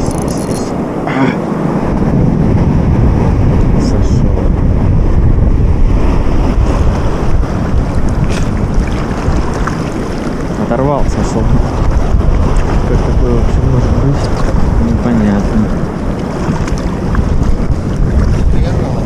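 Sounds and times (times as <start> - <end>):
choppy river water: 0.0 - 19.0
wind buffeting microphone: 0.0 - 19.0.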